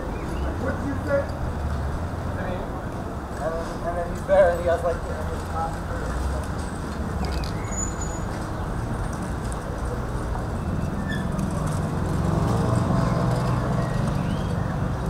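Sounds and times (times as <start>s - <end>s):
bicycles passing: 0.0s - 15.0s
traffic rumble: 0.0s - 15.0s.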